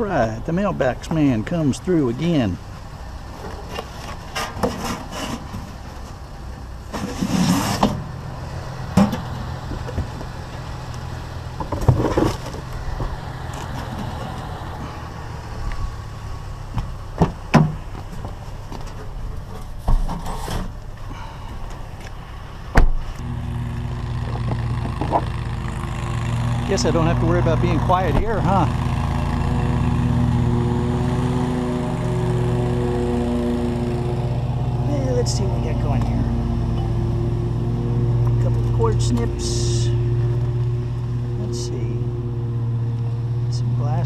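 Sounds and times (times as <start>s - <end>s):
vehicle engine idling: 0.0s - 44.0s
scrap metal knocking and clattering: 3.4s - 6.2s.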